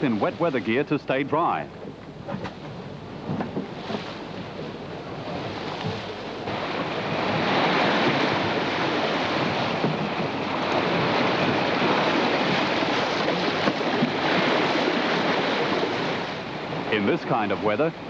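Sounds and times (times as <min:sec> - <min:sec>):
wind and breaking sea: 0:00.0 - 0:18.0
wind buffeting microphone: 0:01.6 - 0:18.0.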